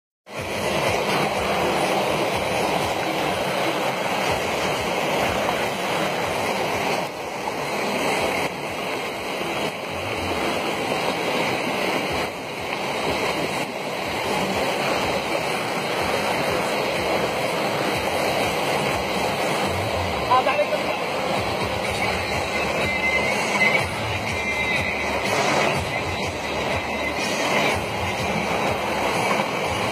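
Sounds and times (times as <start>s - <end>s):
floodwater rushing: 0.3s - 29.9s.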